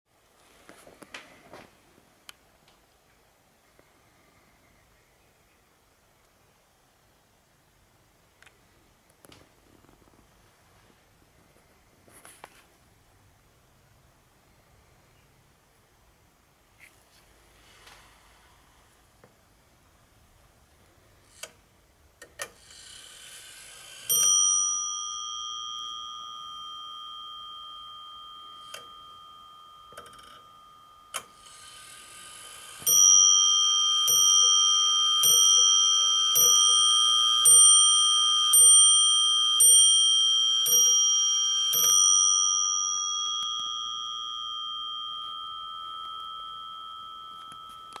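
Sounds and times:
wall clock striking bell: 0:23.5 - 0:48.0.

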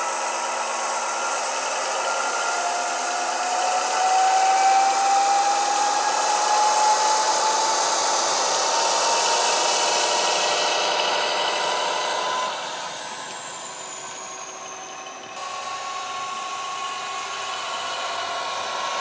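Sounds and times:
diesel locomotive engine: 0:00.0 - 0:19.0
thin rising whine: 0:00.0 - 0:19.0.

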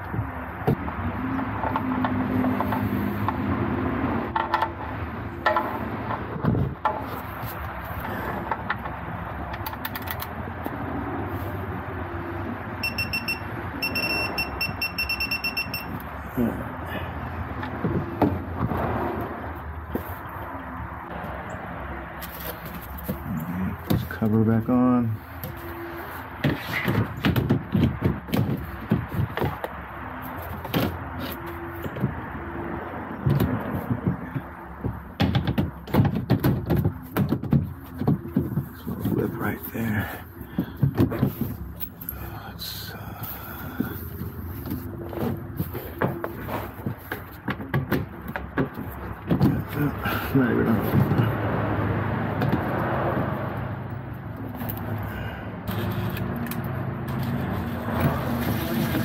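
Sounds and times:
sharp knocking and clunking: 0:04.3 - 0:07.3, 0:17.6 - 0:18.9, 0:26.3 - 0:32.4, 0:33.2 - 0:39.3, 0:40.5 - 0:41.8, 0:43.8 - 0:53.4.

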